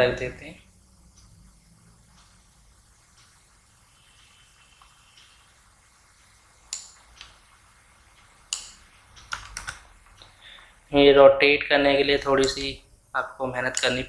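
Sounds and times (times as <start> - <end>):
faint steady hiss: 0.0 - 14.0
computer mouse clicks: 8.2 - 10.4.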